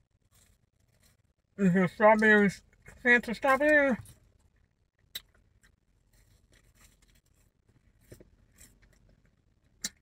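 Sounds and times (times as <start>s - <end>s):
mouth clicks: 5.0s - 5.4s, 9.8s - 10.0s.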